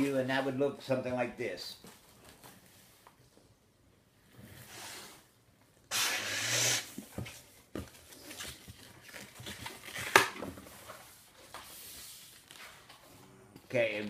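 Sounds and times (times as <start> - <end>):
balloon inflating air rush: 5.9 - 7.1
rubbery balloon squeaks and rubbing: 5.9 - 7.1.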